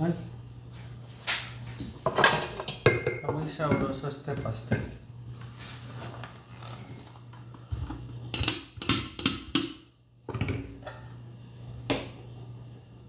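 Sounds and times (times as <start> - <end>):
steel bowls knocking and clinking: 2.0 - 5.0, 8.2 - 11.1.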